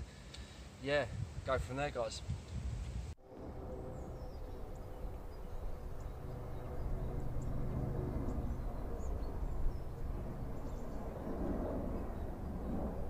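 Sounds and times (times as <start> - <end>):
low rumble: 3.2 - 13.0.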